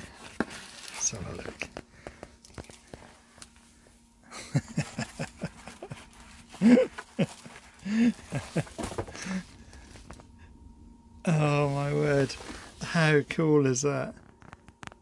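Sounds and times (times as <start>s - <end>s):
plastic wrap crinkling: 0.0s - 1.7s.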